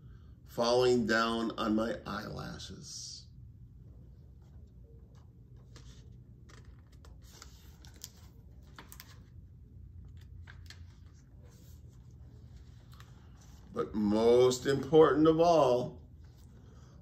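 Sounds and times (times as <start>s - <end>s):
low steady hum: 0.0s - 17.0s
book pages rustling: 4.4s - 14.1s.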